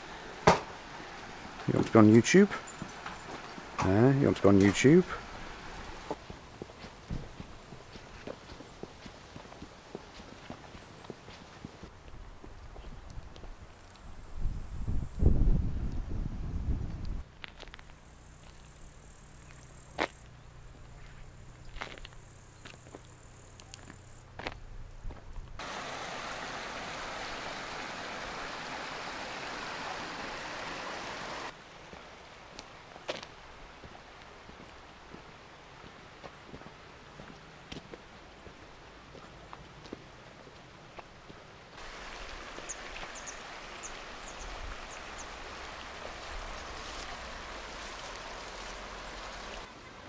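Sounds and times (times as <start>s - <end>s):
flowing water rushing: 0.0s - 11.9s, 25.6s - 37.2s, 41.7s - 50.0s.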